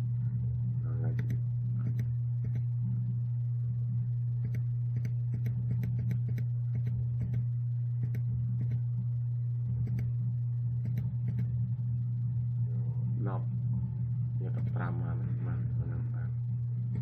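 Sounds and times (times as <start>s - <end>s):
steady low hum: 0.0s - 17.0s
computer mouse clicking: 1.1s - 2.7s, 4.4s - 8.8s, 9.8s - 10.1s, 10.8s - 11.5s.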